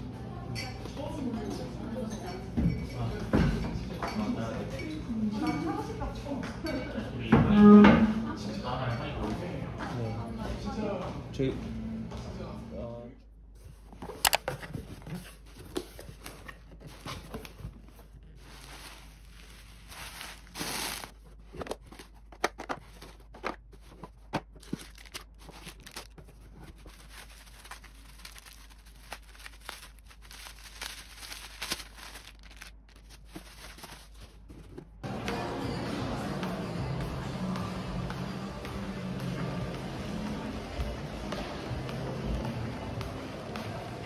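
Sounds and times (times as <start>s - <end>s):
objects being handled: 13.6s - 35.0s.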